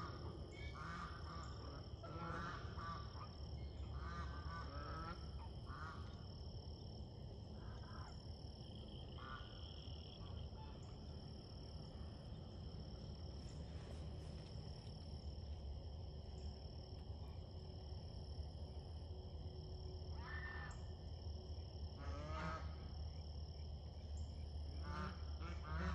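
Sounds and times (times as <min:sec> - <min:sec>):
low background rumble: 0:00.0 - 0:22.0
geese honking: 0:00.8 - 0:03.2, 0:24.9 - 0:25.9.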